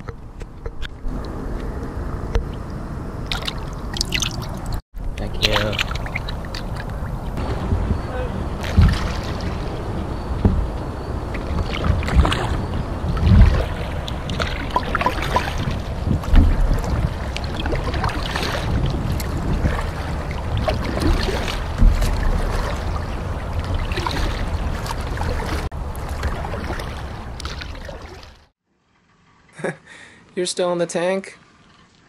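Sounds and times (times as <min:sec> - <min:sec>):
wind rumble on microphone: 0:00.0 - 0:28.4
water dripping: 0:02.3 - 0:08.0, 0:08.6 - 0:28.4
paddle splashing through water: 0:03.2 - 0:04.8, 0:05.4 - 0:28.5.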